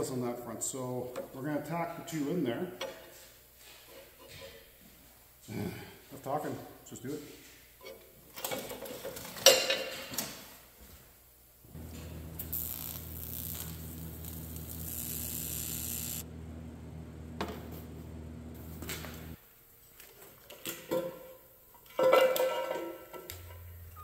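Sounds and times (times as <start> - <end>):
welding arc buzzing and hissing: 11.6 - 16.3, 17.4 - 19.4
welder humming: 11.6 - 19.4.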